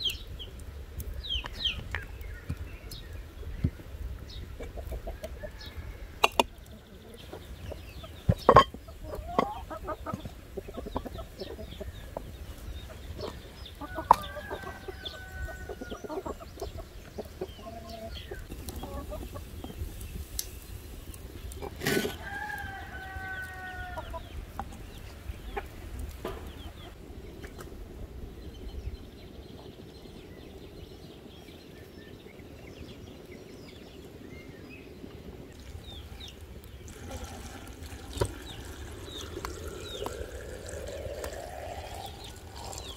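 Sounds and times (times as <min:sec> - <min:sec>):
chickens clucking: 0:04.2 - 0:20.4, 0:21.0 - 0:27.6, 0:37.0 - 0:42.9
rooster crowing: 0:05.2 - 0:06.2, 0:13.8 - 0:16.2, 0:22.1 - 0:24.1.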